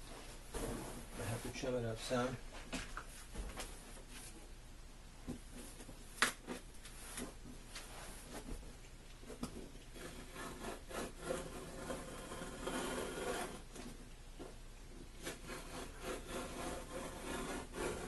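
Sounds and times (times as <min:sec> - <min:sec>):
knife rasping on hardboard: 0:09.9 - 0:13.7, 0:15.2 - 0:18.0.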